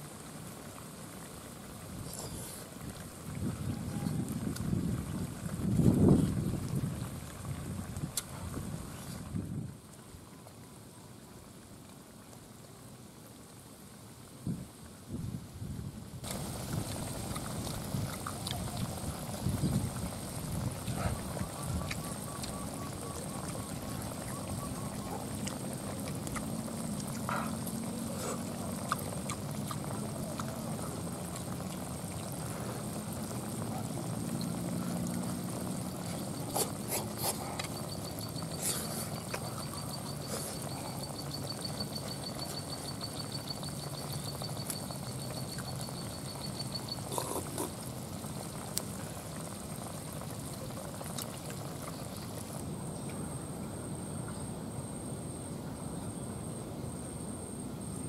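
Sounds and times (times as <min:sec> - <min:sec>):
outdoor background noise: 0:00.0 - 0:58.0
chewing: 0:16.2 - 0:52.6
person slurping: 0:25.0 - 0:33.6, 0:34.6 - 0:37.8, 0:47.0 - 0:47.9.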